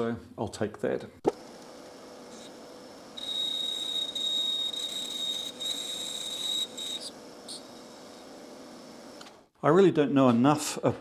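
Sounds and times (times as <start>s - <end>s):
lathe cutting whistle: 2.4s - 8.4s.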